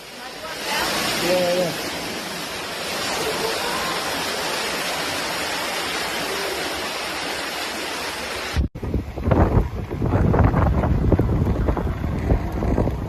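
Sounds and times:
floodwater rushing through doorway: 0:00.0 - 0:13.0
wind gusts on microphone: 0:08.3 - 0:13.0.

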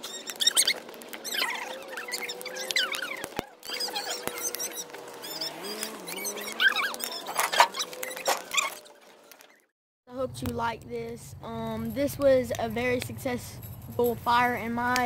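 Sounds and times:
burning boards squeaking and whistling: 0:00.0 - 0:09.7
bonfire crackling and popping: 0:00.0 - 0:15.0.

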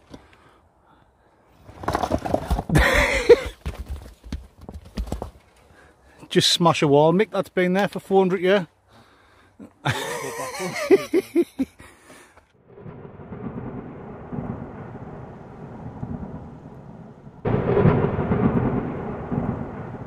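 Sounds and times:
voices: 0:09.8 - 0:11.4
thunderstorm rumble and rain hiss: 0:12.7 - 0:20.0.

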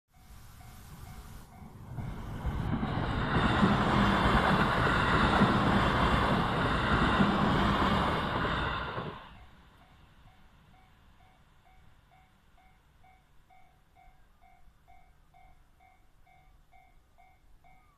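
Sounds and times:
crossing warning bell dinging: 0:00.1 - 0:05.6, 0:09.3 - 0:17.9
train wheels rumbling on rails: 0:00.1 - 0:13.2.

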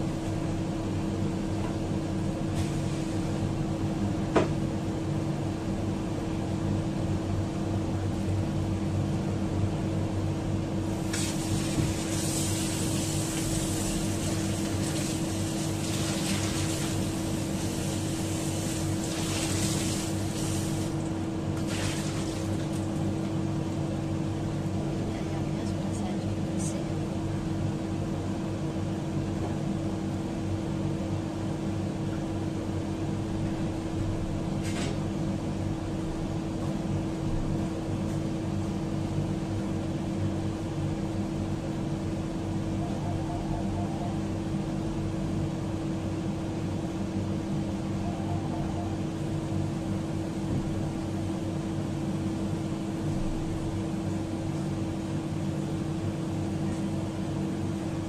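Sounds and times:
kitchen appliance humming: 0:07.9 - 0:25.0.

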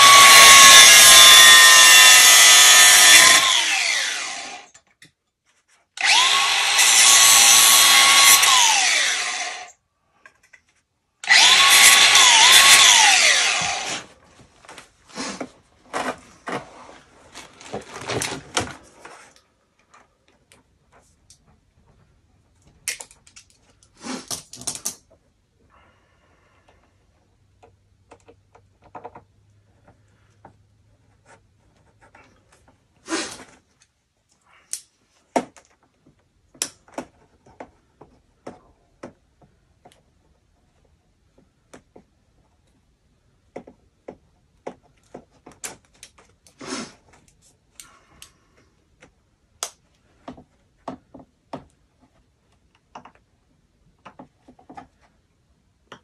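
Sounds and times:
hands clicking and rubbing metal fittings: 0:19.2 - 0:25.2.

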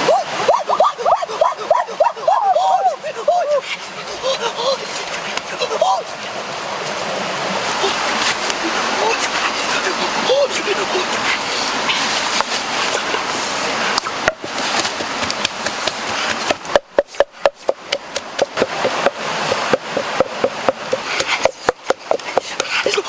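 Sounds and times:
background hiss: 0:00.2 - 0:22.9
wooden pestle pounding in mortar: 0:16.4 - 0:23.0.

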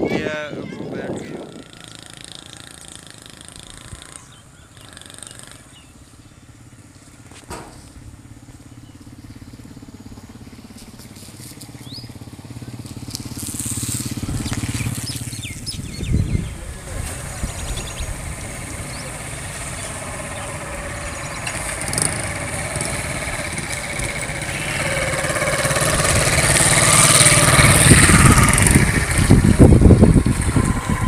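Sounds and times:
engine humming: 0:01.1 - 0:31.0
knocks and thumps: 0:07.5 - 0:07.9.

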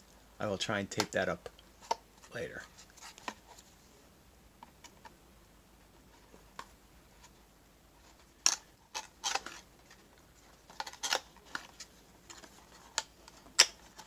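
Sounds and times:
packaging crackling and scraping: 0:08.0 - 0:14.0.

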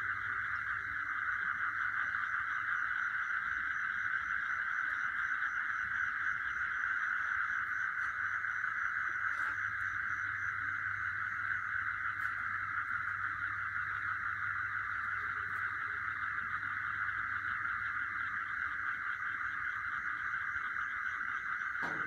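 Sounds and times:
high insect chirp: 0:00.0 - 0:22.0
insect chorus: 0:00.0 - 0:22.0.

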